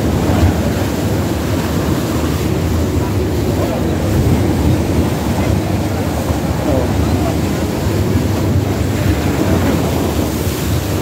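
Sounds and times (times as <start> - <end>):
water rushing past hull: 0.0 - 11.0
wind on the microphone: 0.0 - 11.0.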